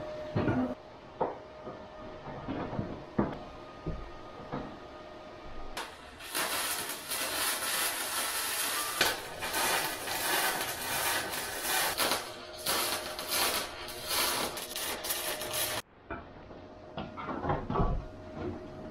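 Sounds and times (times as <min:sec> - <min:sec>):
welder arc crackling sizzle: 0:05.8 - 0:15.8.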